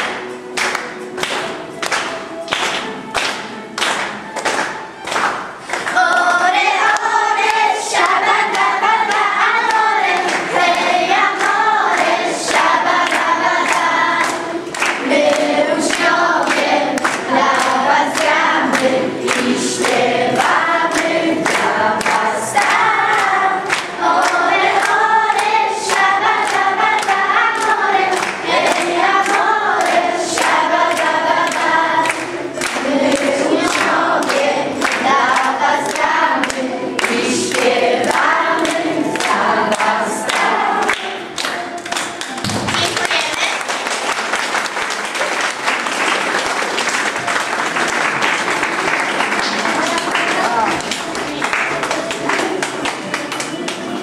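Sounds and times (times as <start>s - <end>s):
children singing together: 5.7s - 42.4s.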